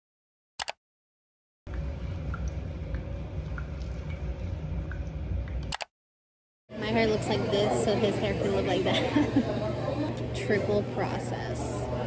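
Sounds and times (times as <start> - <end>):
water running in a basin: 1.7 - 5.7.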